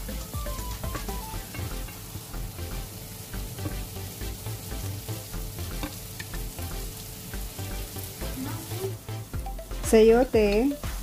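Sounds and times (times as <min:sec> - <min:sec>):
vegetables sizzling in frying pan: 0:00.0 - 0:11.0.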